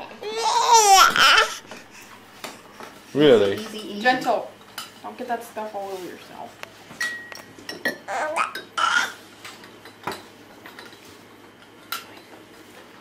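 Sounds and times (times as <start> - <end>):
cups and spoons clinking: 7.0 - 8.8.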